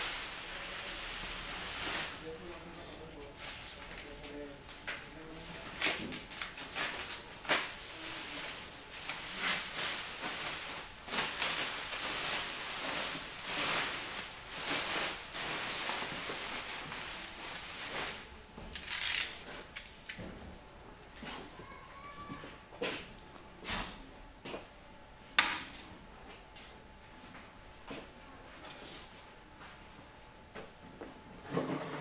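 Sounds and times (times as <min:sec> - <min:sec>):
plastic sheeting crinkling: 0:00.0 - 0:02.4, 0:05.7 - 0:19.8.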